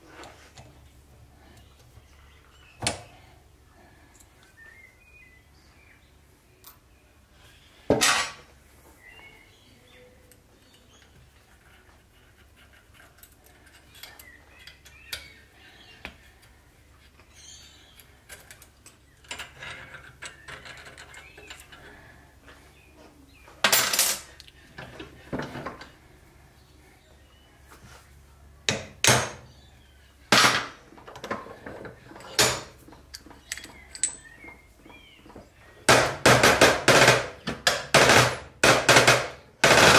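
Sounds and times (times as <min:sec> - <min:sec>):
metal parts clinking: 0:30.4 - 0:34.4.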